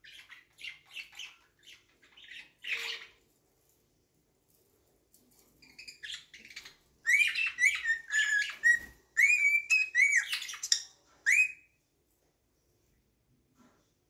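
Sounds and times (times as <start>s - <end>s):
bird chirping and whistling: 5.8s - 11.7s.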